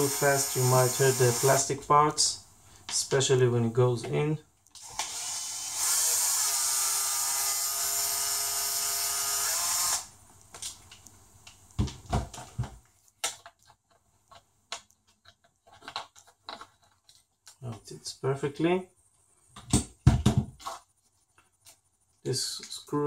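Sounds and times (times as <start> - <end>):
electric screwdriver running: 0.0 - 1.7, 4.8 - 10.1
knocks and clicks of parts: 19.6 - 20.6.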